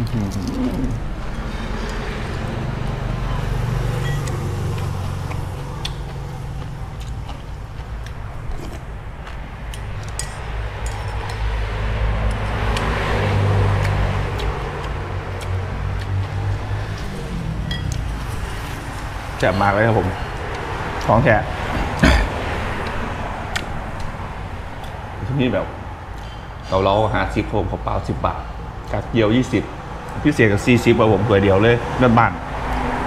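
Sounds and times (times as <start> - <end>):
vehicle engine rumble: 0.0 - 33.0
spoon clinking ceramic bowl: 4.0 - 4.3, 17.7 - 18.0.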